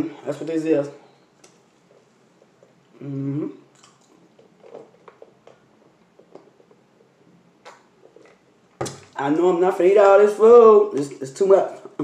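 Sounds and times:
person humming: 3.0s - 3.7s.

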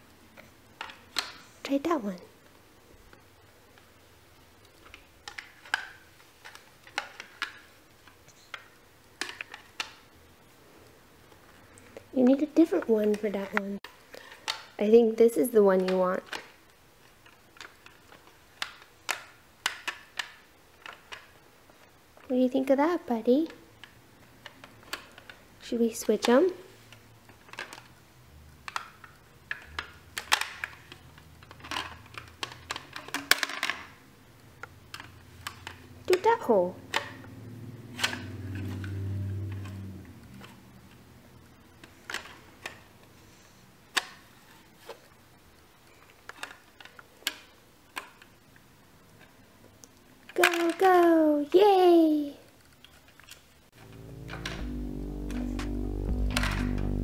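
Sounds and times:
plastic blocks clicking in shape sorter: 4.7s - 10.1s, 15.6s - 22.7s, 23.4s - 28.0s, 28.6s - 36.3s, 41.8s - 43.0s, 46.0s - 51.2s.

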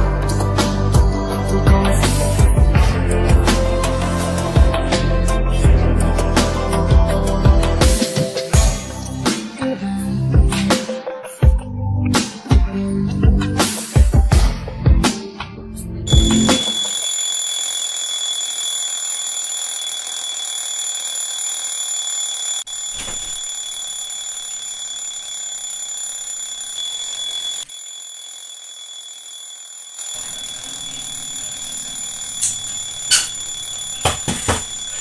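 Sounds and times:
phone alarm ringing: 16.1s - 35.0s.

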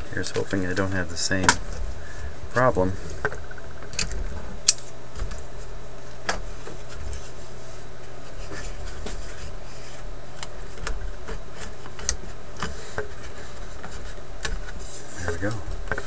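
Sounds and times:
steady low hum: 0.0s - 16.0s
paper rubbing and scratching: 6.7s - 16.0s.

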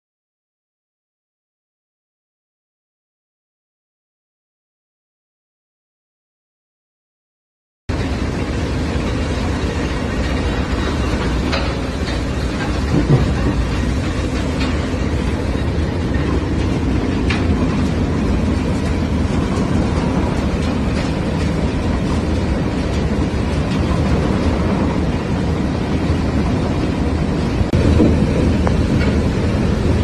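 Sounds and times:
churning sand and water: 7.9s - 30.0s
heavy rumble of motors: 7.9s - 30.0s.

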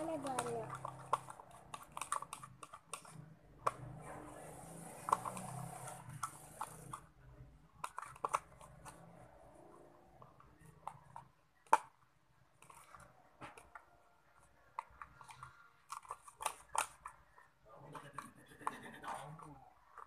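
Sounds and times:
slime clicking and crackling: 0.0s - 3.9s.

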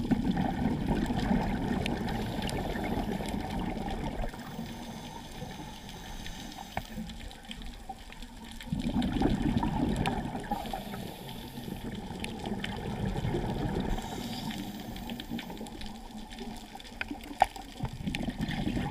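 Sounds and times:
diver's regulator bubbles rushing: 0.0s - 6.0s, 8.6s - 18.9s
faint clicks: 1.7s - 8.8s, 13.4s - 18.2s.

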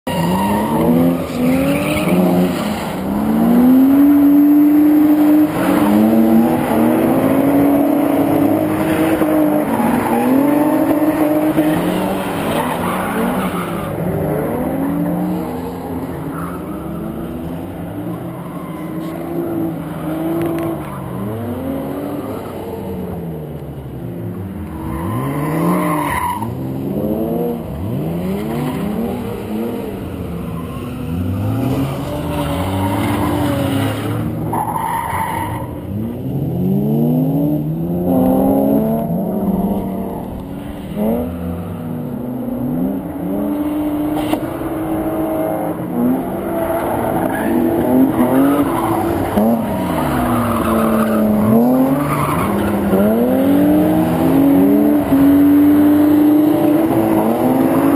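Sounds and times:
tyres squealing on asphalt: 0.1s - 22.8s, 24.6s - 27.0s, 27.8s - 36.1s, 43.3s - 57.9s
car engine revving: 35.6s - 57.9s.

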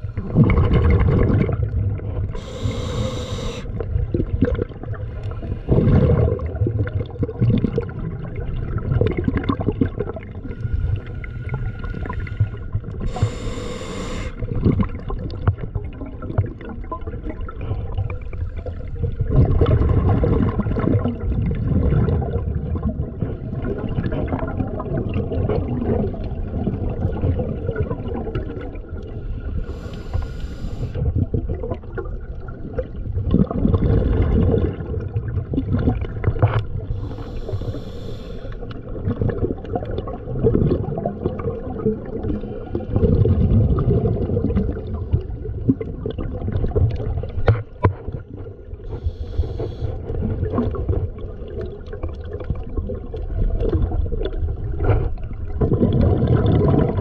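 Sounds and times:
water sloshing and gurgling: 0.0s - 57.0s
short hissing bursts: 2.4s - 3.7s, 13.1s - 14.4s, 37.0s - 38.6s.

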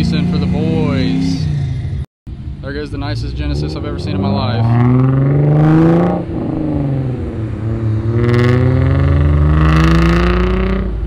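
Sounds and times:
car accelerating hard: 3.1s - 11.0s.

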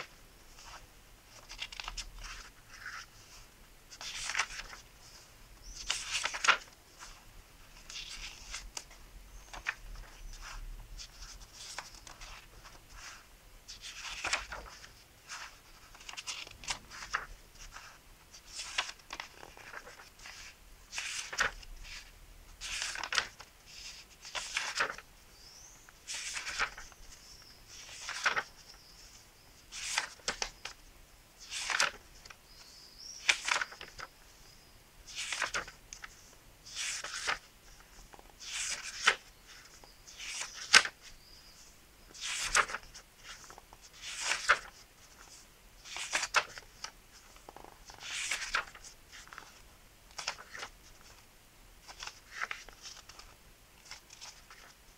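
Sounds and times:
book pages turning: 0.0s - 7.2s, 7.8s - 25.0s, 26.1s - 30.8s, 31.4s - 32.4s, 33.2s - 34.1s, 35.1s - 41.1s, 42.1s - 51.2s, 51.8s - 54.8s.

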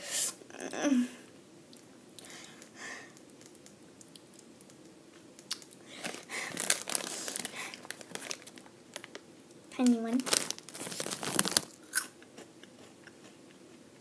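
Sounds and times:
foil snack bag crinkling: 5.6s - 9.2s, 9.8s - 12.1s.

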